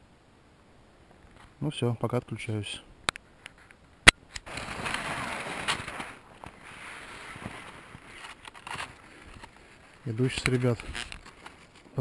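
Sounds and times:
skis swishing through snow: 4.5s - 12.0s.

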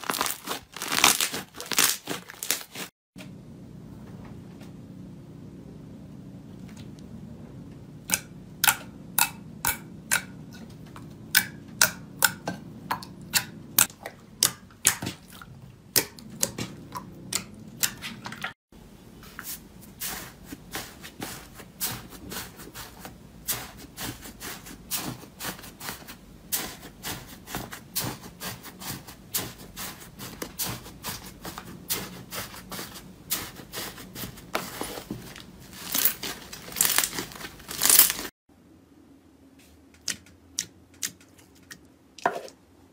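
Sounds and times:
foam slime crackling: 0.0s - 2.9s, 20.1s - 38.3s.

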